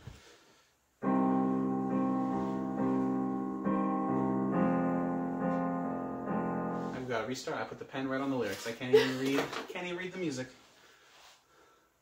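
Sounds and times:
digital piano chords: 1.0s - 7.4s.

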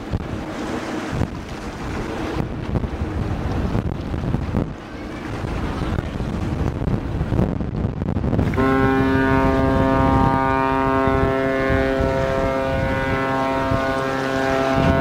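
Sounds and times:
low wind noise: 0.0s - 15.0s
ship's horn blast: 8.4s - 15.0s.

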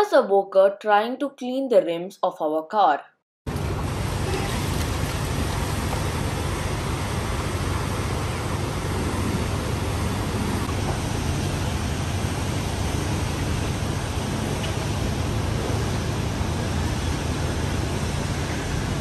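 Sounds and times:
car wash machinery roaring: 3.5s - 19.0s
low hum: 3.5s - 19.0s.

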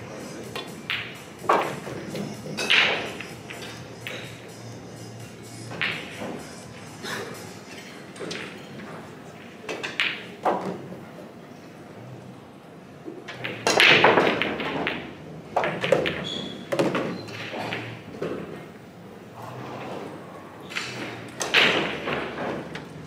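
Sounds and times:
pool balls knocking together: 0.4s - 4.5s, 5.7s - 6.4s, 7.8s - 11.3s, 13.0s - 18.8s, 19.4s - 23.0s
cue ball smashing into pool balls: 0.9s - 4.2s, 13.4s - 18.5s, 20.7s - 22.8s.

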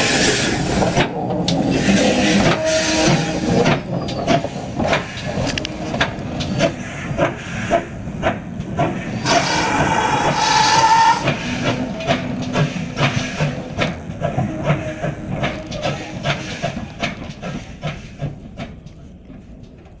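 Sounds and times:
hissing steam: 8.8s - 13.6s
steam engine exhaust beats: 8.8s - 18.4s
steam whistle: 9.2s - 11.7s.

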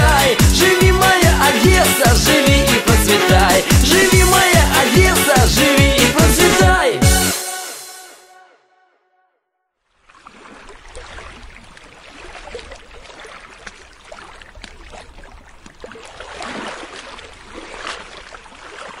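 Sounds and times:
sea waves breaking on shore: 9.9s - 19.0s.

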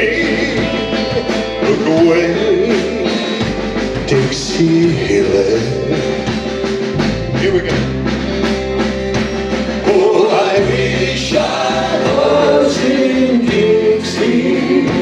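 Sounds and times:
backing voices singing held notes: 0.0s - 3.4s, 9.7s - 15.0s
man singing lead: 0.0s - 8.0s, 9.8s - 15.0s
live rock band playing: 0.0s - 15.0s.

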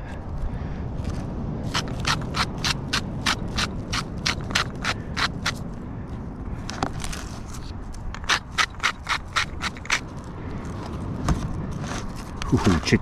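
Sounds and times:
hand grinder ratcheting crunch: 1.7s - 5.6s, 8.1s - 10.2s.

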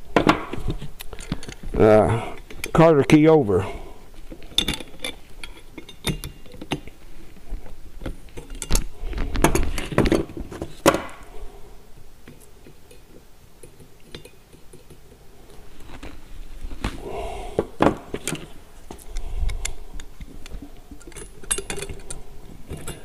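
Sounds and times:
pliers and pin clinking on metal: 4.5s - 6.8s, 21.0s - 23.0s.

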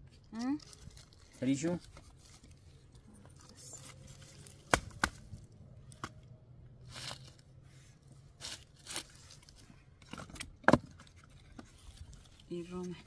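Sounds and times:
firewood cracking: 0.1s - 6.2s.

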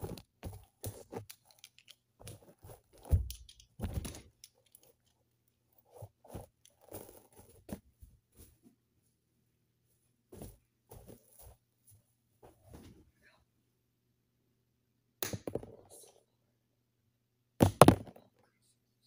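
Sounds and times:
knocks and rustles of person moving: 0.0s - 13.2s.

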